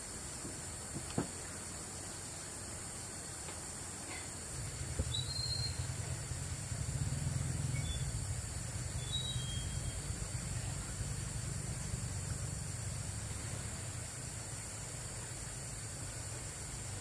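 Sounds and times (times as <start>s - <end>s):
steady high hiss: 0.0s - 17.0s
thin high chirps: 5.1s - 5.9s, 8.9s - 10.1s.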